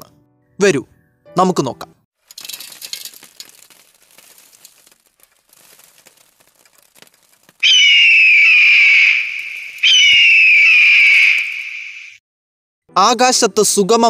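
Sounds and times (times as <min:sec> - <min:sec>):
faint crackling: 0:02.2 - 0:08.4
loud high whistles: 0:07.6 - 0:12.2.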